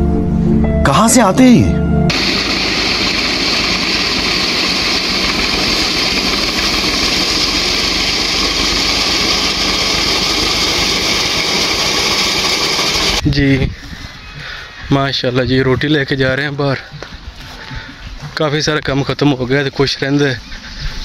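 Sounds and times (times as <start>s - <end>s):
reaper cutting wheat: 2.1s - 13.2s
tractor engine running under load: 2.1s - 13.2s.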